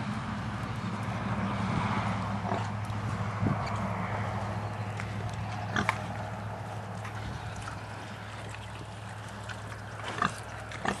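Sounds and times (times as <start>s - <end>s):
steady low hum: 0.0s - 11.0s
footsteps squelching in mud: 2.6s - 11.0s.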